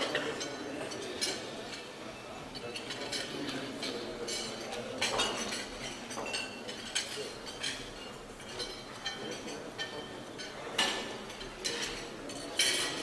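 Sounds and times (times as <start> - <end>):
cutlery and crockery clinking: 0.0 - 2.0, 2.6 - 13.0.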